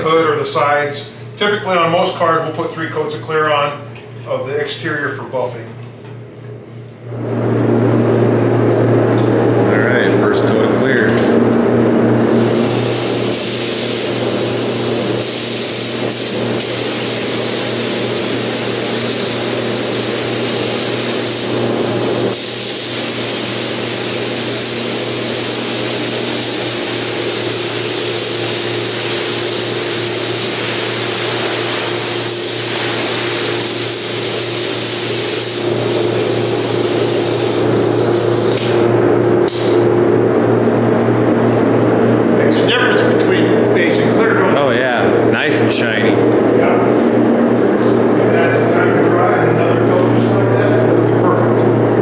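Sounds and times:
steady low hum: 0:00.0 - 0:52.0
paint spray gun hissing: 0:12.2 - 0:38.8.

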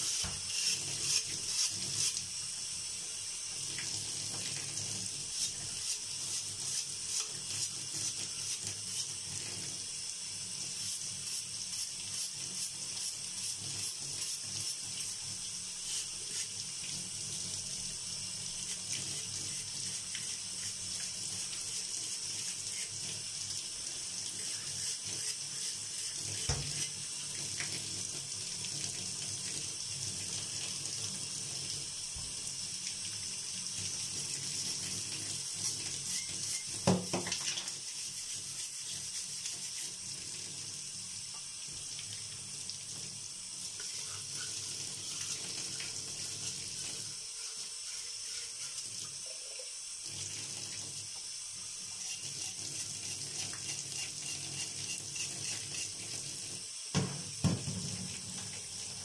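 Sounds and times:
tap water running into bathtub: 0:00.0 - 0:59.0
brush scrubbing metal jug: 0:24.4 - 0:27.0, 0:37.7 - 0:40.0, 0:43.8 - 0:49.7, 0:51.9 - 0:56.1.

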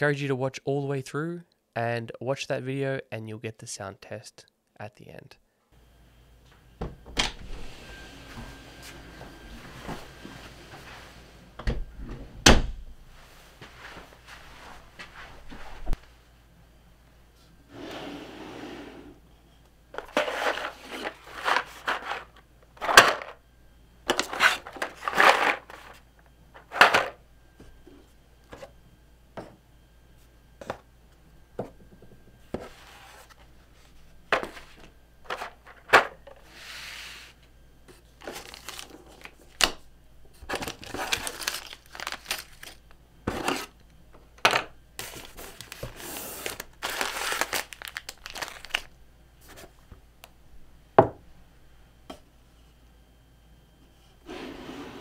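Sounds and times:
cardboard packaging rustling: 0:20.0 - 0:23.3, 0:24.1 - 0:26.0, 0:38.1 - 0:39.7, 0:40.3 - 0:43.8, 0:45.0 - 0:49.7.

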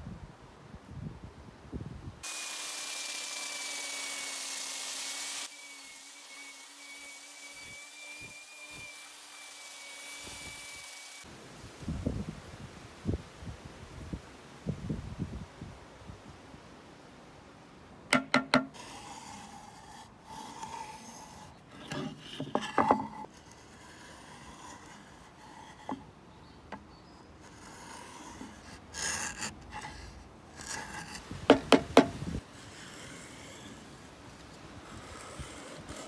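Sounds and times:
steel pin scratching wood: 0:18.1 - 0:36.0.

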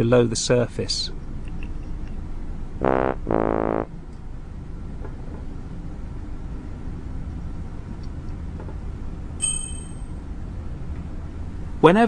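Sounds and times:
low background hum: 0:00.0 - 0:12.0
high-pitched chime: 0:09.4 - 0:10.1.

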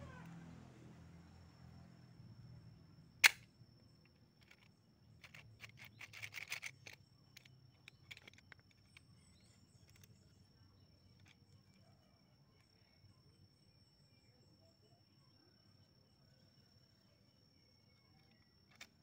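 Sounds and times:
small metallic clicks: 0:03.2 - 0:10.3, 0:18.2 - 0:19.0.

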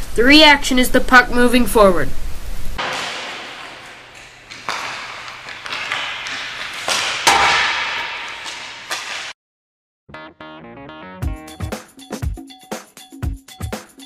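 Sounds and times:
hockey stick striking puck: 0:02.8 - 0:09.4
skate blades scraping ice: 0:02.8 - 0:09.4.

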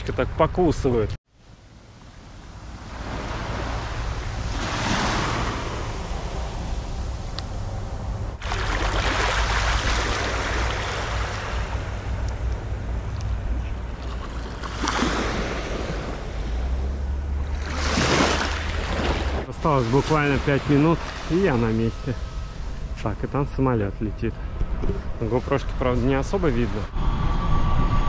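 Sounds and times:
small waves washing on sand: 0:01.5 - 0:07.3, 0:08.4 - 0:16.8, 0:17.4 - 0:22.2
wind rumbling on microphone: 0:01.6 - 0:28.0.

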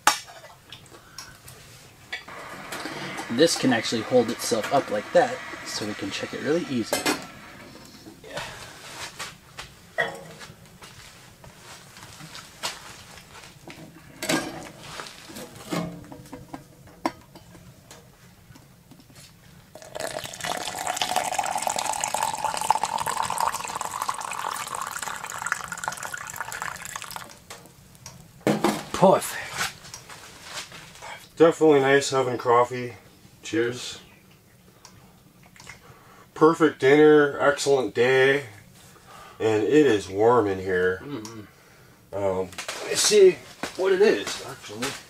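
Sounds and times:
coffee pouring into cup: 0:02.3 - 0:08.0, 0:19.7 - 0:27.4.

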